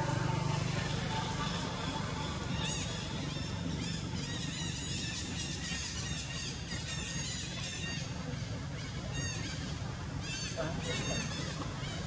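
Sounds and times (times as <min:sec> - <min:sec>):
steady low hum: 0:00.0 - 0:12.0
infant monkey squealing: 0:08.8 - 0:12.0.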